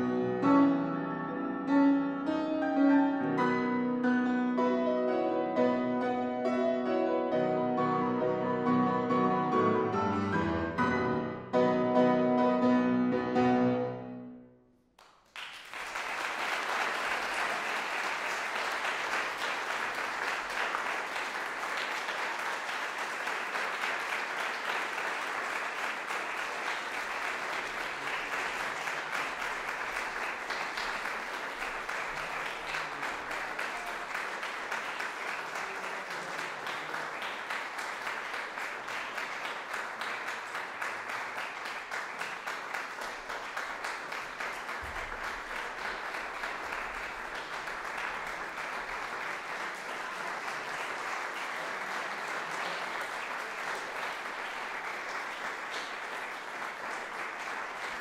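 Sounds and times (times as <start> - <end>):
audience applause: 15.0 - 58.0.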